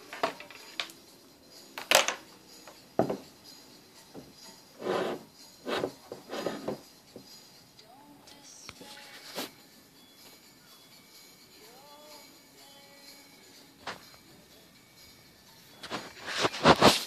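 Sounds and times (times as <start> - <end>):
rubbing and scraping: 4.8 - 6.8, 15.8 - 17.0.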